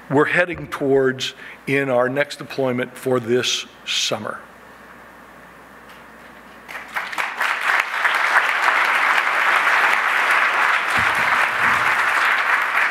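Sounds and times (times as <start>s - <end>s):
audience applause: 6.7s - 12.9s.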